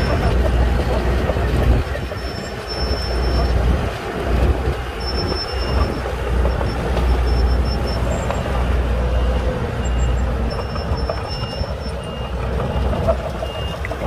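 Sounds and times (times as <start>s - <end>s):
bulldozer diesel engine running: 0.0s - 14.0s
track clatter: 0.0s - 14.0s
short high beeps: 5.0s - 12.9s.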